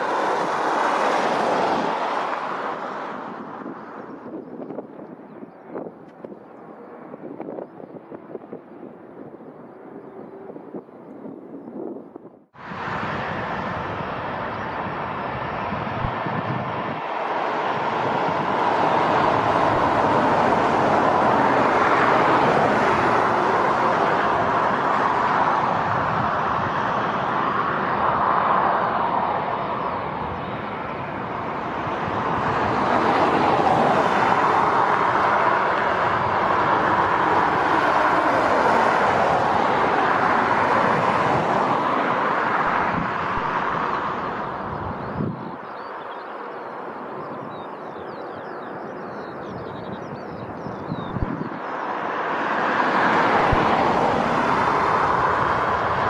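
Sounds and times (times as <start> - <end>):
jet engines taxiing: 0.0 - 50.2, 50.8 - 56.0.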